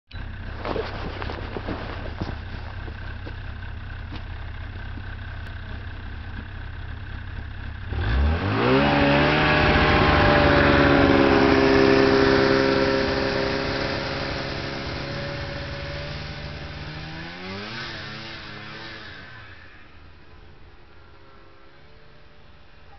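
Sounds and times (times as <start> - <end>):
low steady rumble: 0.1 - 8.2
snowmobile engine revving: 7.8 - 22.9.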